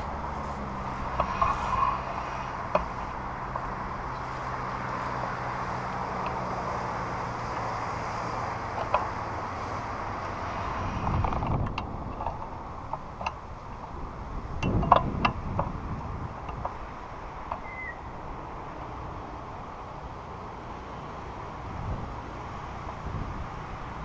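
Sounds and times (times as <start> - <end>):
leaves brushing against camera: 0.0 - 6.1.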